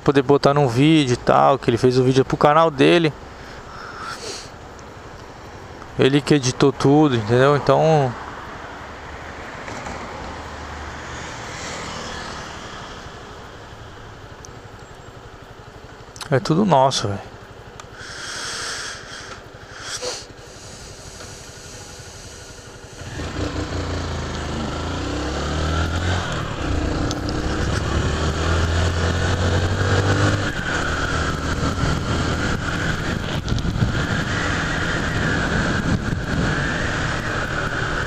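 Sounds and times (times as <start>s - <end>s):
motorcycle engine accelerating: 17.4s - 38.0s
wind noise on microphone: 31.2s - 38.0s.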